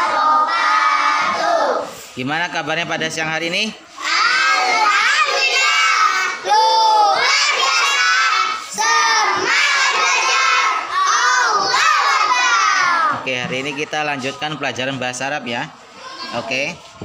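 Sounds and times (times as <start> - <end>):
boys shouting in unison: 4.0 - 13.2.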